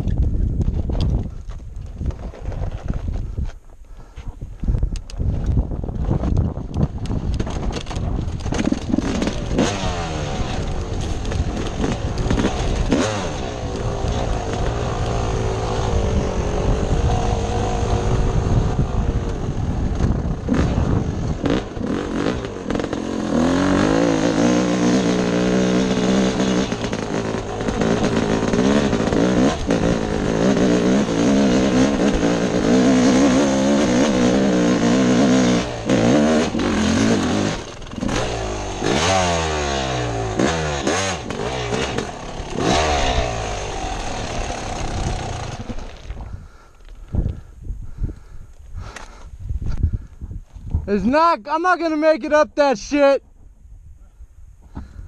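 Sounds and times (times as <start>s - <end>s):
knocks and rattles: 6.2s - 9.8s
dirt bike engine revving: 7.4s - 46.7s.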